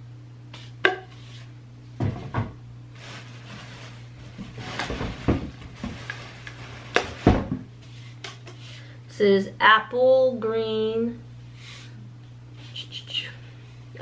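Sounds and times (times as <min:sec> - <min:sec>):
steady low hum: 0:00.0 - 0:14.0
cardboard tubes knocking and scraping: 0:04.4 - 0:06.2.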